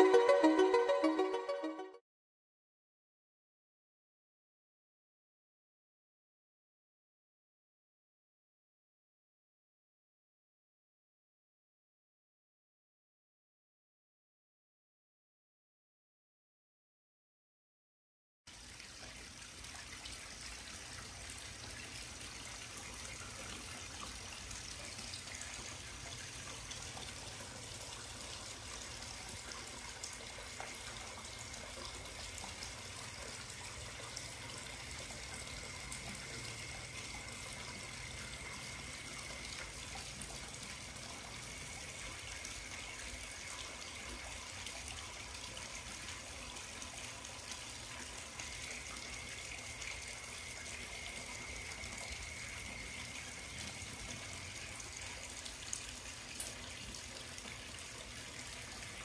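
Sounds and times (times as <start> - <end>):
water flowing into pool: 0.0 - 1.8, 18.5 - 59.0
faint high tone: 0.0 - 2.0.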